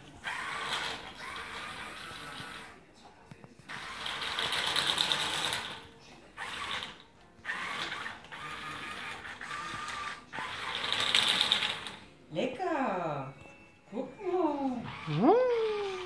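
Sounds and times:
toy car motor whirring: 0.0s - 2.8s, 3.7s - 12.0s, 14.8s - 16.0s.

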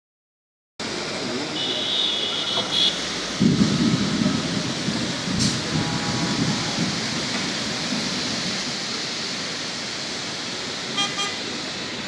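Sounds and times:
heavy rain on wet street: 0.8s - 12.0s
passing traffic: 0.8s - 12.0s
vehicle horn beeping: 1.6s - 3.0s, 10.9s - 11.5s.

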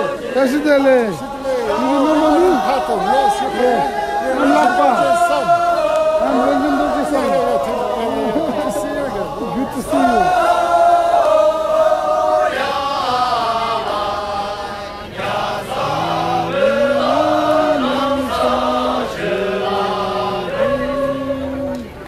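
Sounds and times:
group singing long held notes: 0.0s - 22.0s
lower voices singing: 0.0s - 22.0s.

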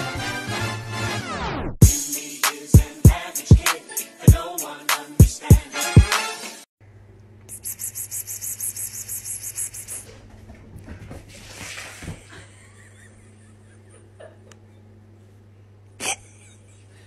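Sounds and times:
steady low hum: 6.8s - 11.5s, 12.2s - 17.0s
person whispering pspsps: 7.5s - 10.1s.

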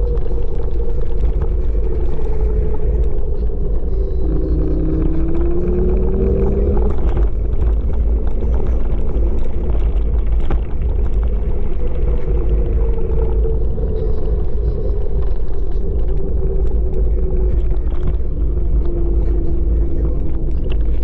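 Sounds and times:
wind buffeting microphone: 0.0s - 21.0s
electric motor whine: 1.6s - 9.6s.

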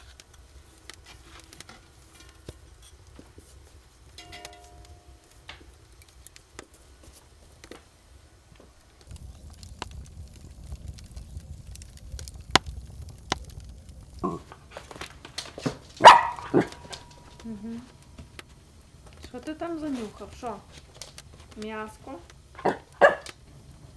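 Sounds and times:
wood fire crackling: 0.0s - 23.9s
low rumble: 9.0s - 20.4s.

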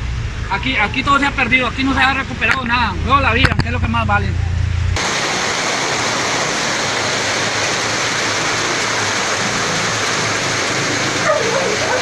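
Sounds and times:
floodwater rushing: 5.0s - 12.0s.

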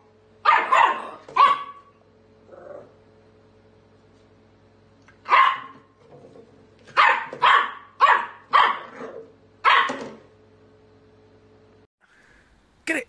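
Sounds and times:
puppy barking: 0.4s - 1.9s, 5.2s - 5.9s, 6.9s - 10.2s.

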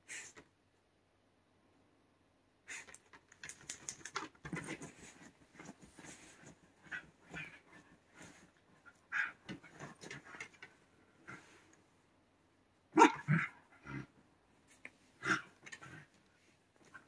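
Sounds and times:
dog barking: 13.0s - 13.6s.

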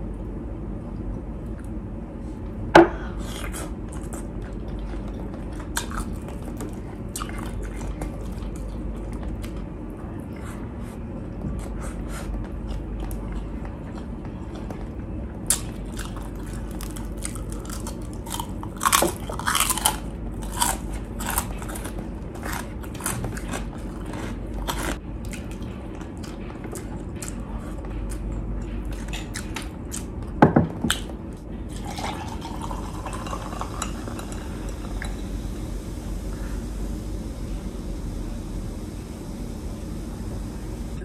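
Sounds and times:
crunchy chewing: 3.2s - 31.1s.

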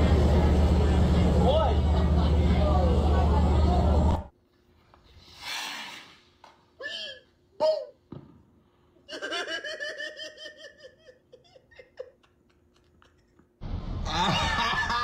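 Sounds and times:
noisy voices: 0.0s - 4.3s
person laughing: 9.1s - 15.0s.

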